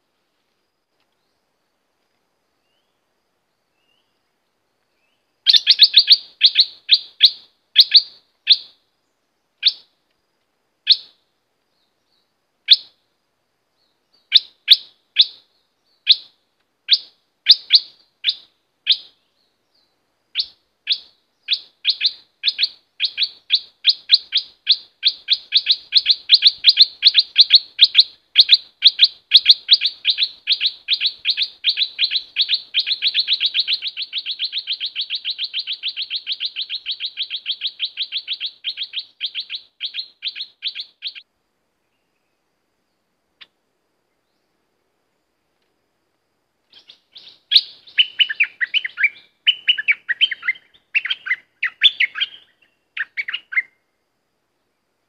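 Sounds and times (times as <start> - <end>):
songbird chip notes: 3.6 - 9.9, 16.9 - 41.2, 46.7 - 53.9.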